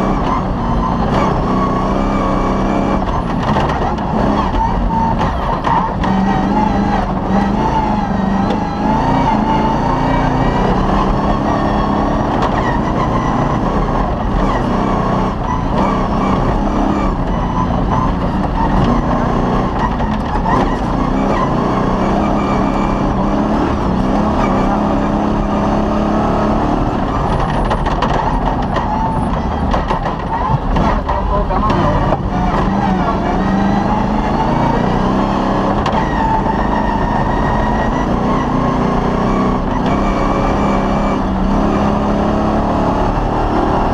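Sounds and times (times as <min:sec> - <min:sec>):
car knocks and rattles: 0:00.0 - 0:09.3, 0:10.2 - 0:25.4, 0:26.4 - 0:34.1, 0:35.7 - 0:37.6
rally car engine running hard: 0:00.0 - 0:43.9.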